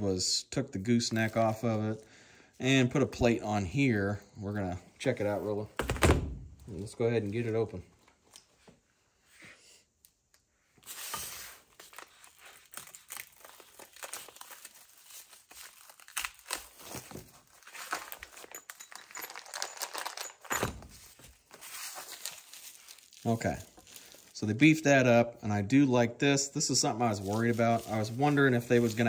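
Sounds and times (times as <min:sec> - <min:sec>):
plastic wrap crinkling and tearing: 0:10.8 - 0:24.4, 0:27.0 - 0:29.0.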